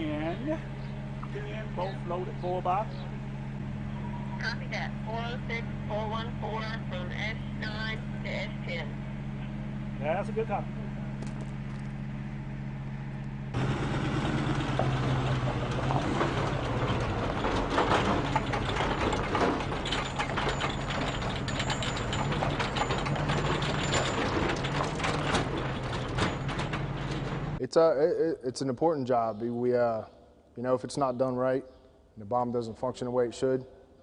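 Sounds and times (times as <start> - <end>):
steady engine hum: 0.0 - 27.6
truck engine running: 0.0 - 27.6
trailers clattering and rattling: 13.6 - 27.6.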